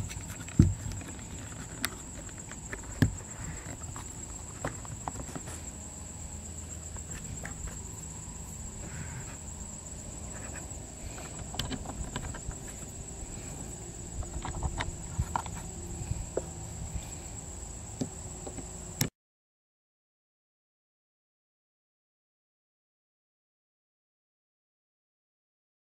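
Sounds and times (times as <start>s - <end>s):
high insect drone: 0.0s - 19.1s
plastic parts and screws clicking: 11.2s - 12.9s.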